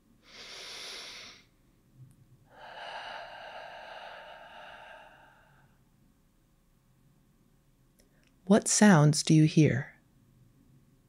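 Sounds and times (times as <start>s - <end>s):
person exhaling deeply: 0.3s - 1.4s, 2.5s - 5.8s.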